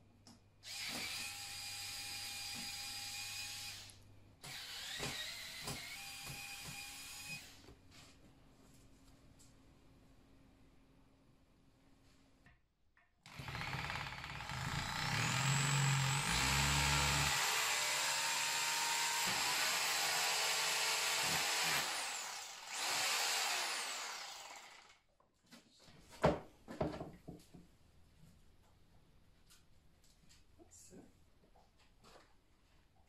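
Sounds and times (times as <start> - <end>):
power drill boring into plaster: 0.7 - 7.6, 13.3 - 25.0.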